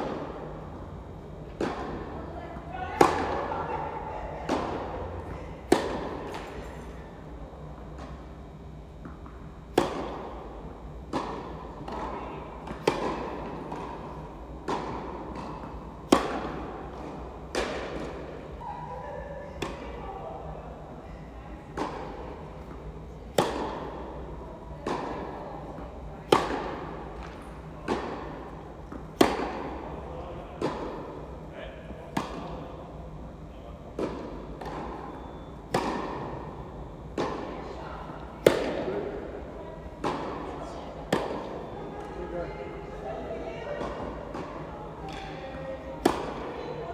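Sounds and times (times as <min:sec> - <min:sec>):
tennis balls struck by rackets: 0:01.4 - 0:03.5, 0:04.4 - 0:06.6, 0:09.0 - 0:18.5, 0:19.6 - 0:19.9, 0:21.7 - 0:31.4, 0:32.0 - 0:33.0, 0:33.9 - 0:41.7, 0:43.7 - 0:46.9.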